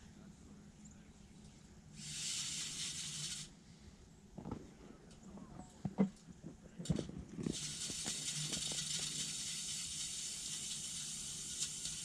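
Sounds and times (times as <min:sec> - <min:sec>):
steady high hiss: 0:00.8 - 0:04.2, 0:07.4 - 0:12.0.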